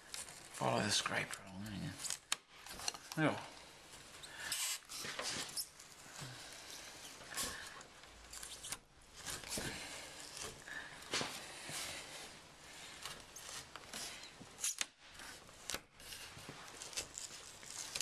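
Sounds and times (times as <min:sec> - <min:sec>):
trim strip peeling and tearing: 0:07.0 - 0:10.7, 0:13.0 - 0:18.0.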